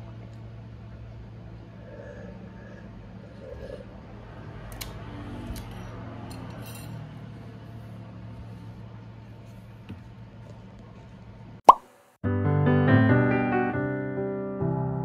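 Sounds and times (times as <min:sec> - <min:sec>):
steady low hum: 0:00.0 - 0:04.5.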